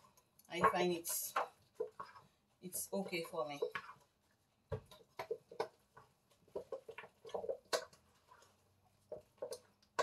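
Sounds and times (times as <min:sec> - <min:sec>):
wooden spoon stirring batter in bowl: 0:00.0 - 0:10.0.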